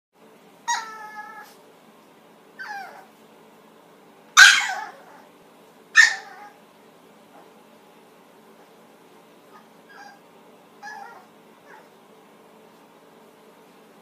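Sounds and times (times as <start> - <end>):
small dog yelping and barking: 0.6 - 1.6, 2.6 - 3.1, 4.4 - 5.3, 6.0 - 6.6, 9.5 - 10.2, 10.8 - 12.0.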